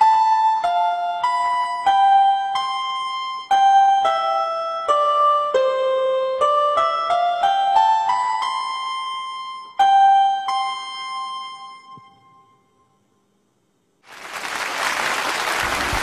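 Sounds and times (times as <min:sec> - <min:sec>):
audience applause: 0:14.0 - 0:16.0.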